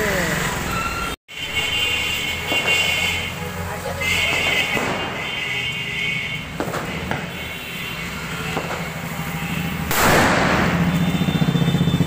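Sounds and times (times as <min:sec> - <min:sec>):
firecracker bang: 0:04.2 - 0:05.4, 0:06.6 - 0:07.4, 0:09.9 - 0:11.0.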